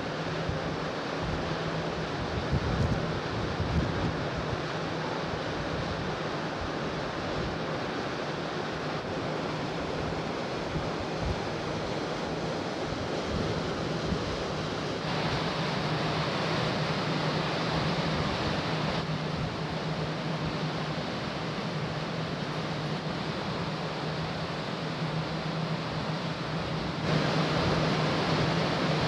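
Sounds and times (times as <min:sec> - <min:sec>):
ship low hum: 0:00.0 - 0:29.0
water rushing past hull: 0:00.0 - 0:29.0
wind buffeting microphone: 0:02.2 - 0:04.7.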